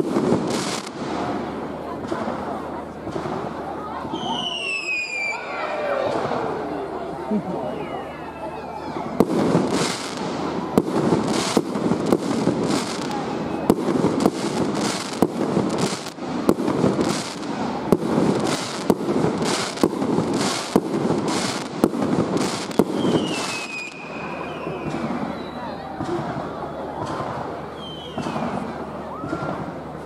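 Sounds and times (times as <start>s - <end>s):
crackle of firework stars: 0.0s - 7.3s, 8.3s - 30.0s
falling firework whistle: 4.1s - 6.2s, 22.5s - 25.9s, 27.8s - 29.6s
firework shells bursting: 9.2s - 25.4s.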